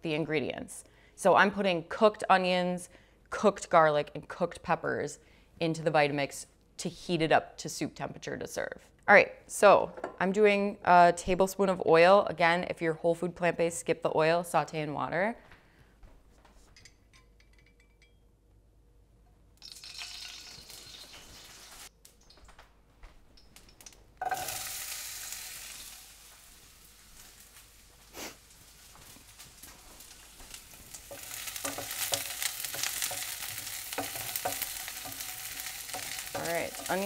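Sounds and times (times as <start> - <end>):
onion sizzling in hot oil: 19.6 - 21.9, 23.8 - 37.0
wooden spoon scraping and stirring: 27.9 - 37.0.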